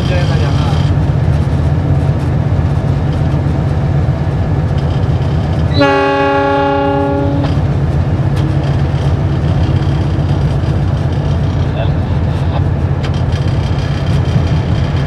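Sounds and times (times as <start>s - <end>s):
diesel engine low rumble: 0.0s - 15.0s
locomotive horn blast: 5.7s - 7.6s.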